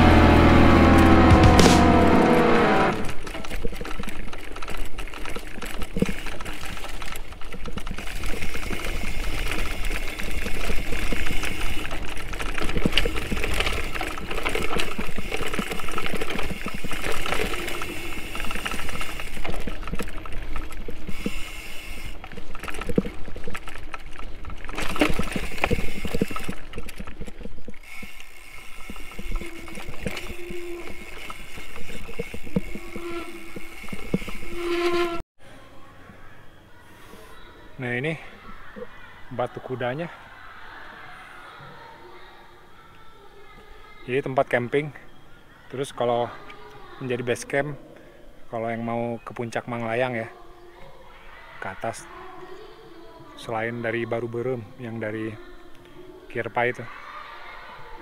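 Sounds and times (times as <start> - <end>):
high drone: 0.0 - 3.1
bike rattles and knocks: 0.0 - 35.2
wind and tyre rumble: 0.0 - 35.2.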